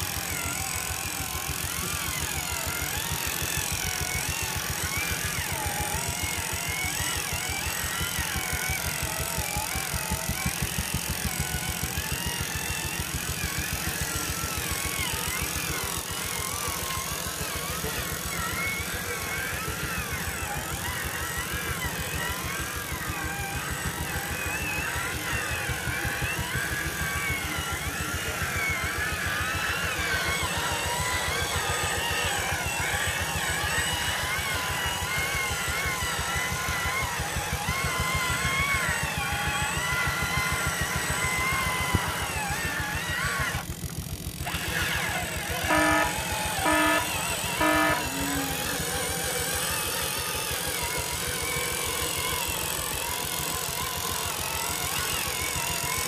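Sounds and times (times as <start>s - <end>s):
electric motor whining: 0.0s - 56.0s.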